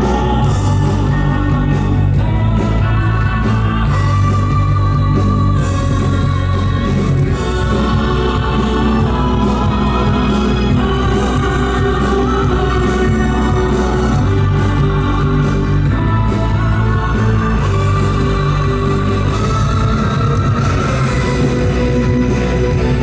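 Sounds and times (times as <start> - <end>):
show music with singing: 0.0 - 23.0
steady bass: 0.0 - 23.0.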